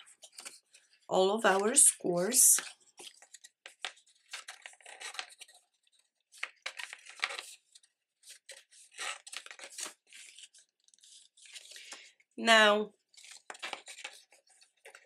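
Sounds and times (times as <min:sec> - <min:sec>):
cardstock crackling and rustling: 0:02.6 - 0:12.0, 0:13.0 - 0:15.0.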